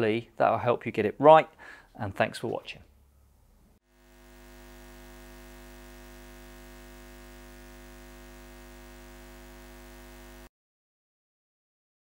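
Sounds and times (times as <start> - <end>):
steady droning hum: 3.9 - 10.5.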